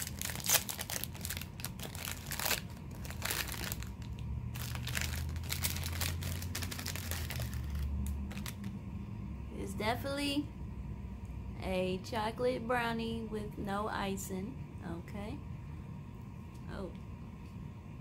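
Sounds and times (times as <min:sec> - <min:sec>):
plastic wrapper crinkling and tearing: 0:00.0 - 0:08.8.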